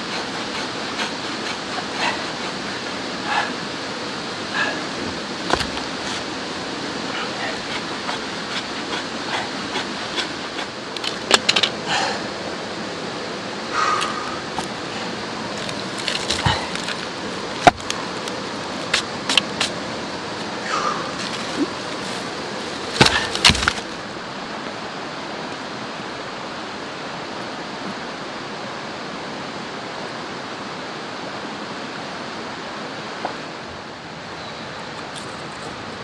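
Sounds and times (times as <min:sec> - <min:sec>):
river water over rocks: 0:00.0 - 0:36.0
wooden logs knocking together: 0:05.1 - 0:06.3, 0:07.4 - 0:11.8, 0:15.5 - 0:19.8, 0:20.4 - 0:24.0.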